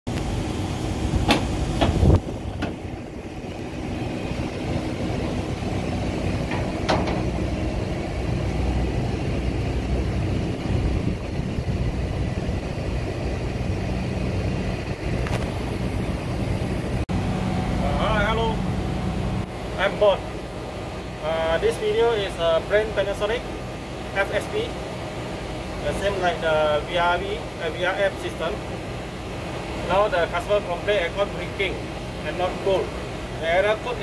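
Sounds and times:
air-conditioner units droning: 0.1 - 34.0
metal panel knocks and clicks: 6.5 - 7.3.

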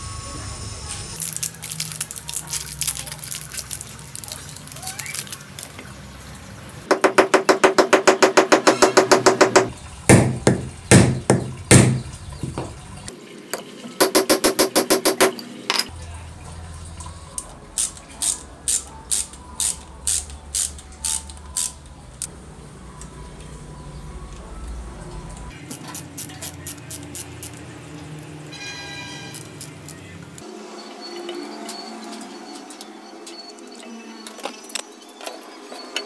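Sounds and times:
hammer tapping metal tube: 6.9 - 12.0, 14.0 - 15.4.

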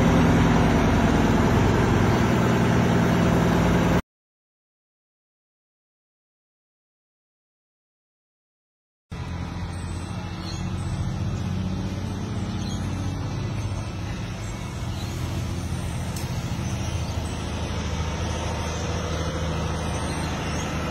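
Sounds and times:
truck diesel engine idling: 0.0 - 4.0, 9.2 - 20.9.

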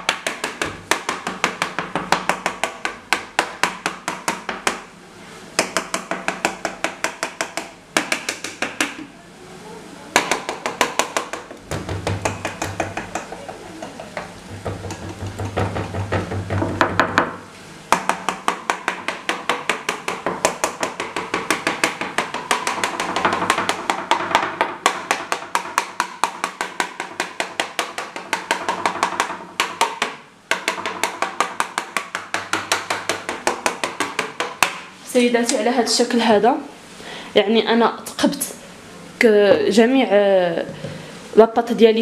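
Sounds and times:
fork tapping on metal tray: 5.6 - 9.0, 10.2 - 17.3, 17.9 - 34.9.

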